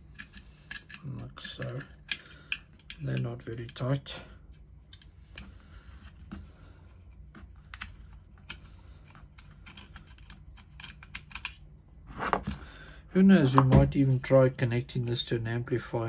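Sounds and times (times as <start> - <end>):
hand driver clicking and scraping: 0.0 - 6.4, 7.3 - 11.6.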